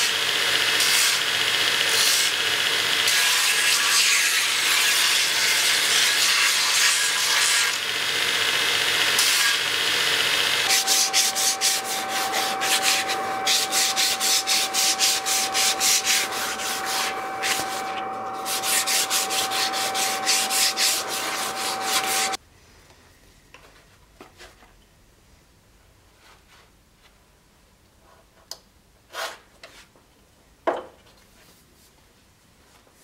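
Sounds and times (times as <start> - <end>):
belt sander grinding wood: 0.0 - 22.4
hand sanding strokes: 10.7 - 22.4.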